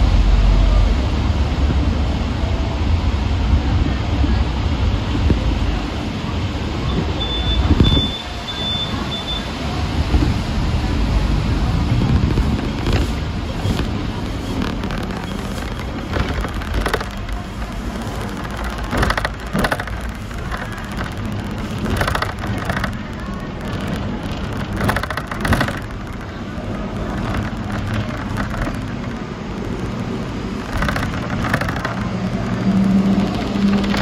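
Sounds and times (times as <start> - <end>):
street traffic: 0.0 - 34.0
tram rumbling on track: 0.0 - 34.0.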